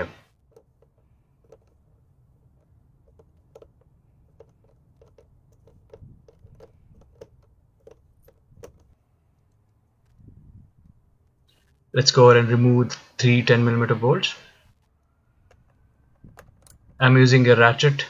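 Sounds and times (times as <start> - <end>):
screwdriver clicks and ticks: 0.4 - 9.0.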